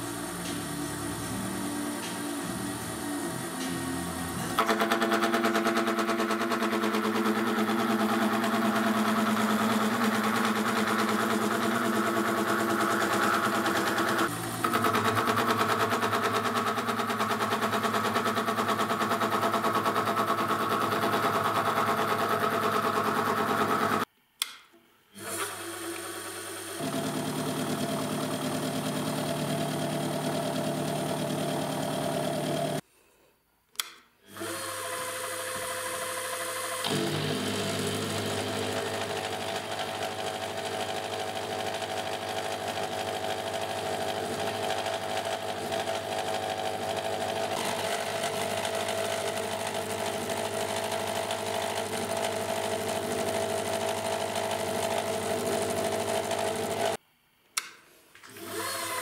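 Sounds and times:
milling machine whine: 0.0 - 19.5.

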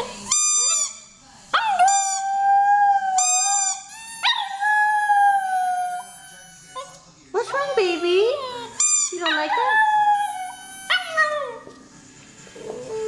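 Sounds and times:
squeaky toy squeaks: 0.0 - 1.1, 1.7 - 2.4, 3.2 - 11.4
puppy howling: 1.6 - 11.7, 12.6 - 13.0.

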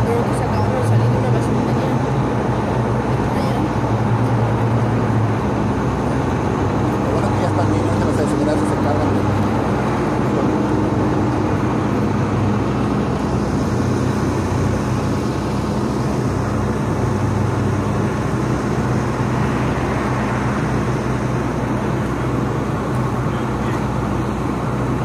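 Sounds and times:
fire engine idling: 0.0 - 25.0
road noise: 0.0 - 25.0.

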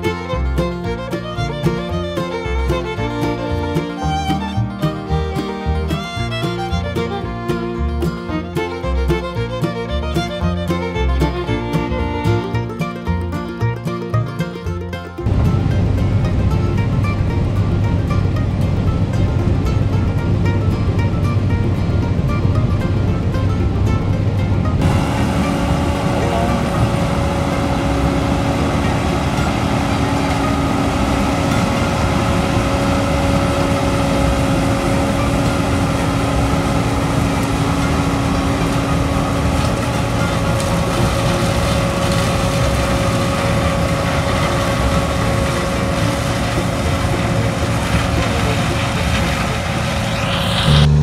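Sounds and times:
combine harvester drone: 0.0 - 51.0
machinery whining tones: 24.7 - 51.0.

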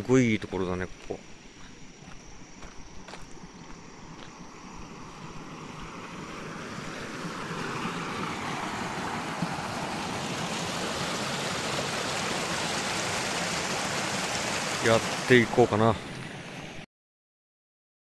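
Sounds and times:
stream rushing over rocks: 4.8 - 16.8.

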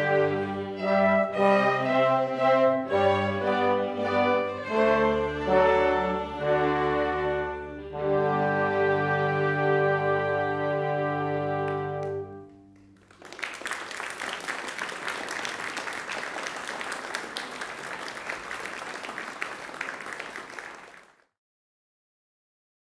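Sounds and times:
audience applauding: 12.8 - 21.3.

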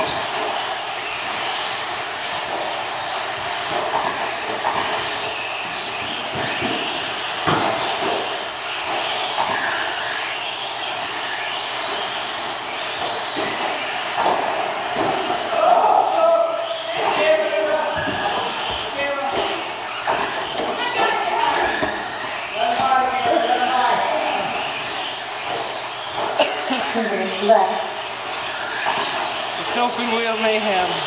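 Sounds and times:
electric motors whining: 0.0 - 31.0
sharp knocks: 5.9 - 9.7.

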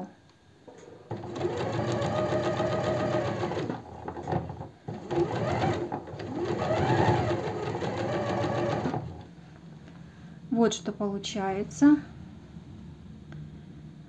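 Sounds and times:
sewing machine stitching: 0.7 - 9.3.

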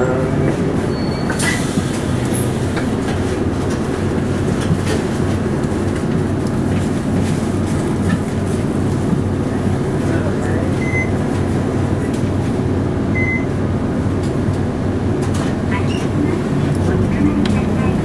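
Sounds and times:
diesel bus engine humming: 0.0 - 18.0.

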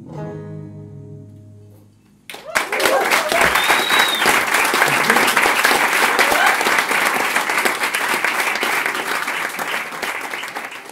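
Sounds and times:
audience applauding: 2.3 - 10.9
high whistle: 3.3 - 4.5.

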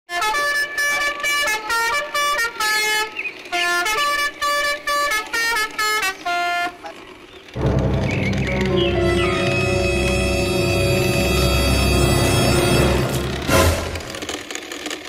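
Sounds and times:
musical horn playing a tune: 0.1 - 6.8, 7.6 - 14.4
music: 7.6 - 14.4.

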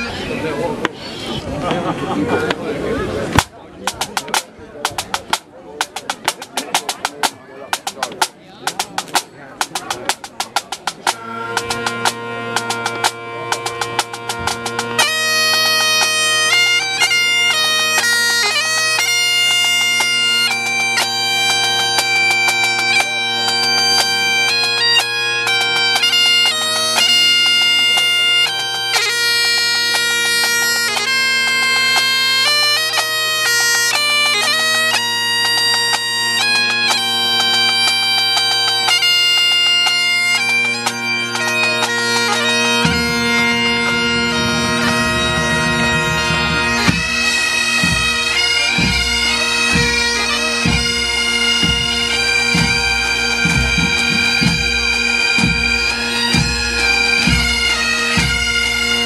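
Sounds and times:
bagpipe band playing: 0.0 - 59.0
sharp drum taps: 3.4 - 11.2.

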